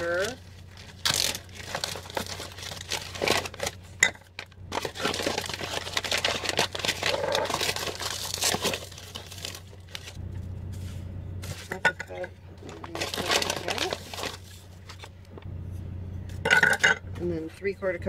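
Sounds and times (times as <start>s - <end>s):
plastic bag crinkling: 0.0s - 10.2s, 12.6s - 15.1s.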